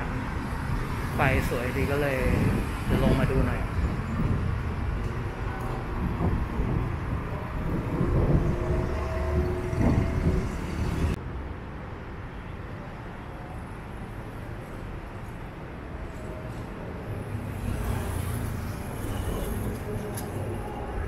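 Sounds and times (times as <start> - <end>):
steady traffic hum: 0.0 - 21.0
vehicles passing: 0.0 - 21.0.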